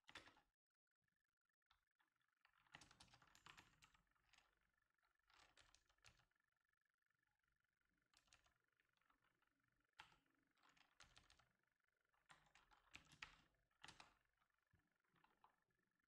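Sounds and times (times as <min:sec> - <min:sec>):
faint keyboard typing: 0:00.1 - 0:00.4, 0:02.5 - 0:04.6, 0:05.3 - 0:06.3, 0:08.1 - 0:09.4, 0:10.0 - 0:11.5, 0:12.2 - 0:14.2.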